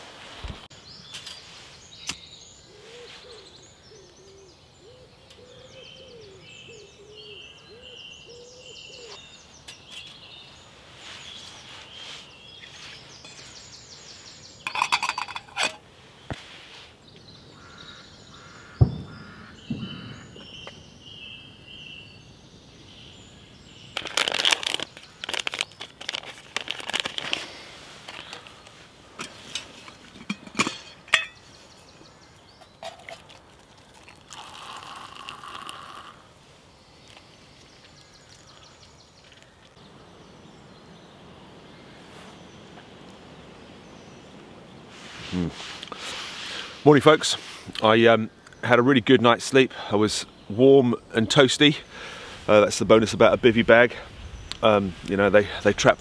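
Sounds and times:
birds singing: 0.7s - 26.2s, 26.8s - 56.0s
metal pots clinking: 14.6s - 15.8s, 29.2s - 31.5s.

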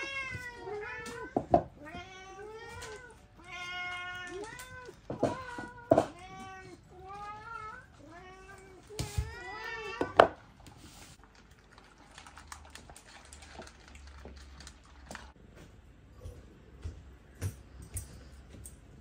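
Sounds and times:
cats meowing: 0.0s - 10.4s
cats eating from bowls: 2.1s - 15.4s.

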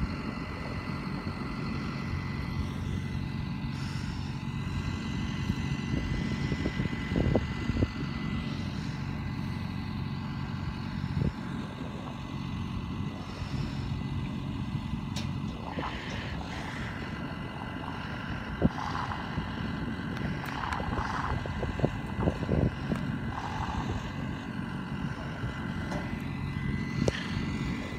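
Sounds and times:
tractor diesel engine running: 0.0s - 27.9s.

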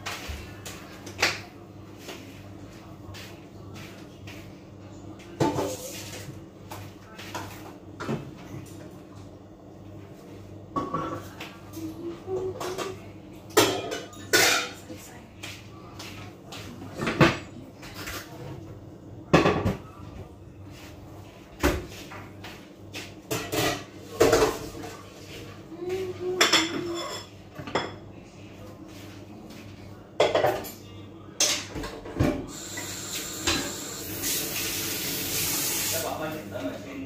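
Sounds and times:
metal pots and pans clattering: 13.6s - 14.8s.

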